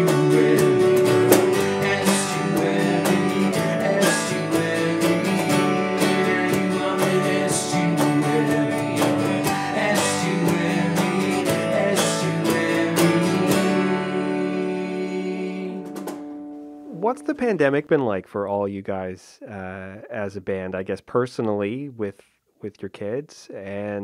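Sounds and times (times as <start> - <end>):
percussion hits: 0.0 - 14.0, 15.8 - 16.6
strummed acoustic guitar: 0.0 - 17.4
keyboard: 0.0 - 17.8
bass guitar: 0.0 - 18.1.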